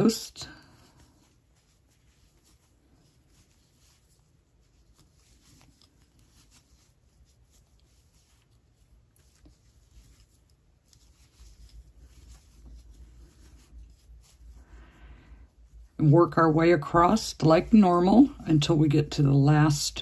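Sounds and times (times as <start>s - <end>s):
yarn rustling: 0.0s - 20.0s.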